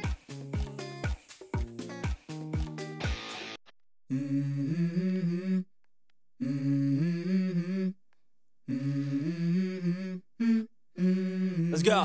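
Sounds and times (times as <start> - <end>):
hummed vocal music: 4.1 - 5.7, 6.4 - 8.0, 8.6 - 11.8.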